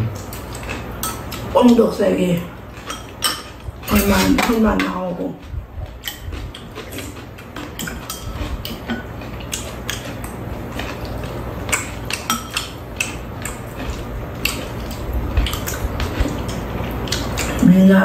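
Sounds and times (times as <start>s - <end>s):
metal utensils clinking on bowls: 2.8s - 5.1s, 6.0s - 10.2s.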